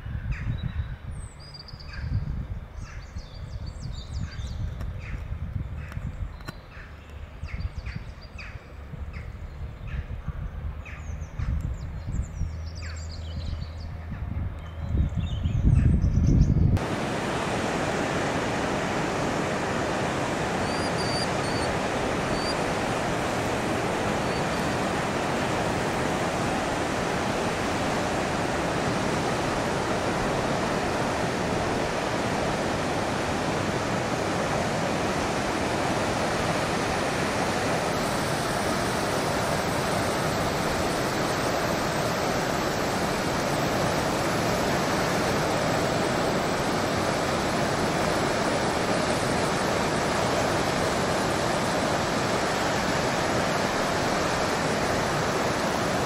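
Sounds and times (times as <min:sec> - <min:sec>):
sea water washing on rocks: 0:16.8 - 0:56.0
faint high bird calls: 0:20.6 - 0:22.7.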